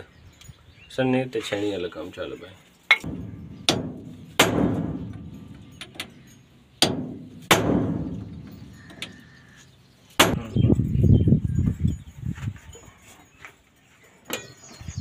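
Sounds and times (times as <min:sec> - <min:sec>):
low rumbling clatter: 0:03.1 - 0:06.4.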